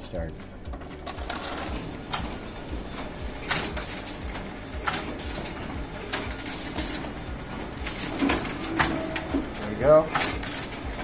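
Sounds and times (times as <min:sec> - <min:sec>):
copier running with low pulsing: 0:00.5 - 0:11.0
sharp copier clacks: 0:03.4 - 0:11.0.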